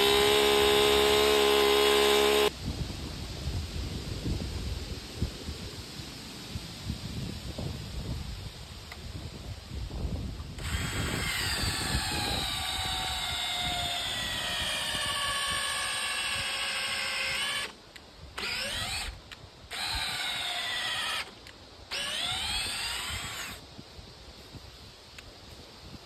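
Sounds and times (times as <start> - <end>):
electric drill boring into log: 0.0 - 2.6, 10.6 - 23.6.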